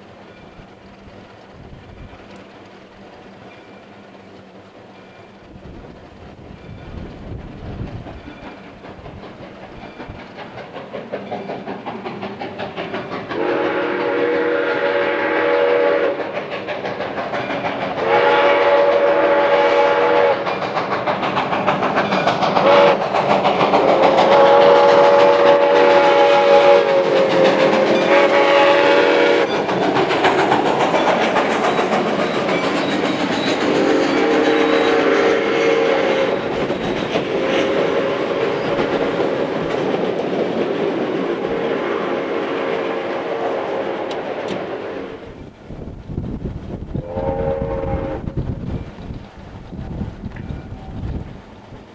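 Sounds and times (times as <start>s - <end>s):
steam locomotive exhaust beats: 0.0s - 51.9s
freight cars clattering over rails: 5.0s - 13.4s, 20.4s - 35.2s, 36.2s - 41.8s
steam whistle blasts: 13.4s - 16.4s, 18.0s - 20.5s, 22.6s - 23.0s, 23.9s - 29.5s, 33.6s - 36.5s, 41.5s - 45.2s, 47.0s - 48.4s.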